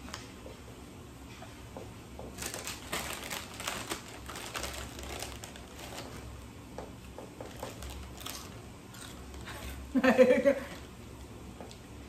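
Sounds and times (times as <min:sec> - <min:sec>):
plastic chip bag crinkling: 0:02.4 - 0:06.3, 0:07.4 - 0:09.5.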